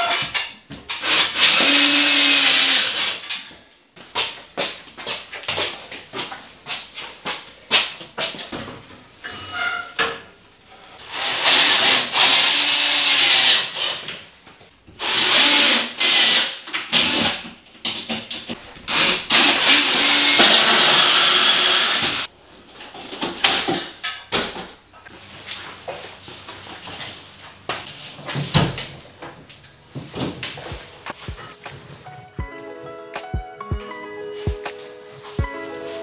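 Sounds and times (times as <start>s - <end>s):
power drill running: 18.9s - 22.2s.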